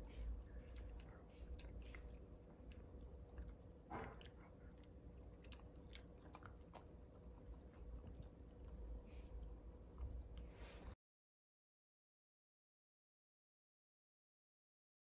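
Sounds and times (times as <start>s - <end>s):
puppy teeth crunching chew stick: 0.0s - 10.5s.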